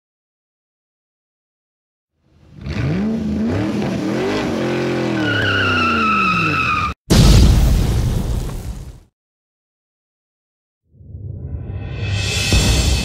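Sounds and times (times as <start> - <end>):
car engine revving: 2.3 - 6.6
tyres squealing: 3.5 - 7.0
loud crash: 7.1 - 9.0.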